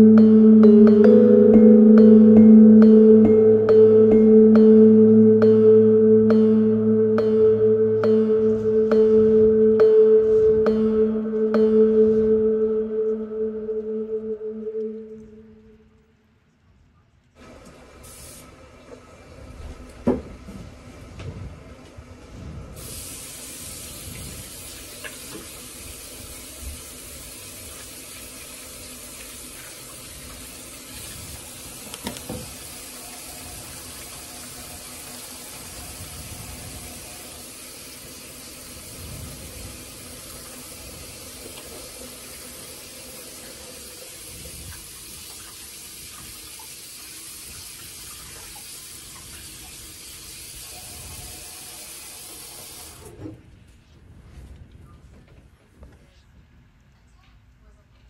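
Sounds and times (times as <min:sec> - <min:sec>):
tap water running into sink: 0:23.3 - 0:50.7.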